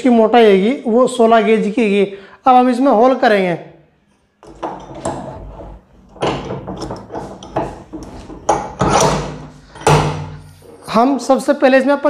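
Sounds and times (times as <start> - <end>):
knocks and scrapes on wooden workbench: 4.4 - 10.8.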